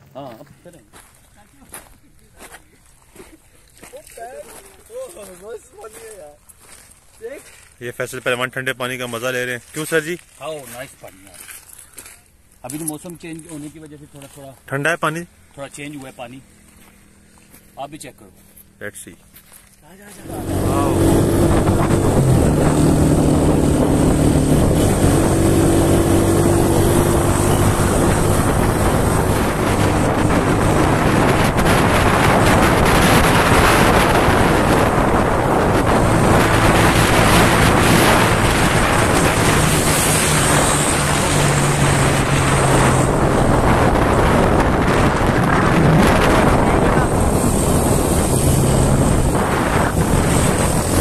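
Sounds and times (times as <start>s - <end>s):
motorcycle engine running: 18.3s - 51.0s
wind rushing over microphone: 20.2s - 51.0s.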